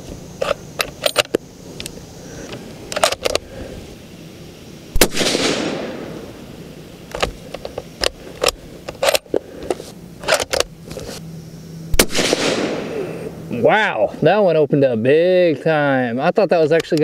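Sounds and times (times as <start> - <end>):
suppressed rifle shot: 4.9 - 6.4, 11.9 - 13.1.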